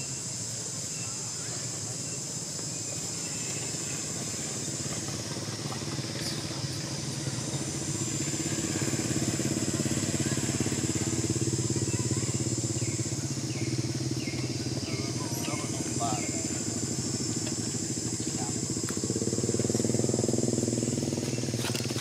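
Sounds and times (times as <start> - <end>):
engine running: 0.0 - 22.0.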